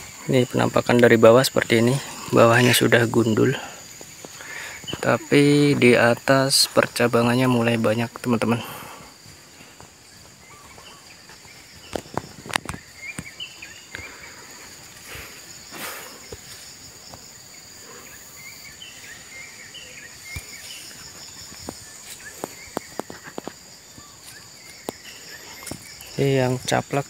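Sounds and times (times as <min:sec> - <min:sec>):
insects droning: 0:00.0 - 0:27.0
short insect chirps: 0:00.0 - 0:27.0
footsteps and handling rustles: 0:09.3 - 0:17.5, 0:20.0 - 0:27.0.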